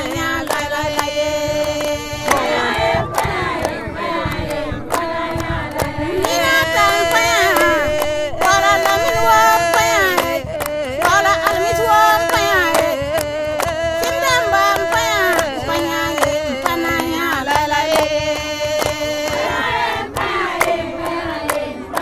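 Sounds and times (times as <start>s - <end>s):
person singing ornamented notes: 6.3s - 19.5s.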